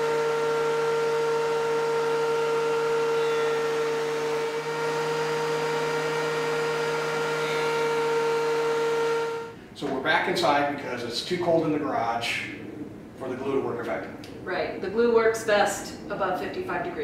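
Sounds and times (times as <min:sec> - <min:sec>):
thickness planer motor whine: 0:00.0 - 0:09.6.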